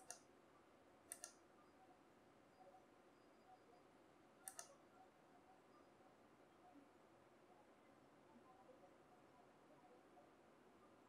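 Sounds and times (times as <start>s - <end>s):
faint sharp clicks: 0.0s - 0.3s, 1.1s - 1.4s, 4.4s - 4.8s.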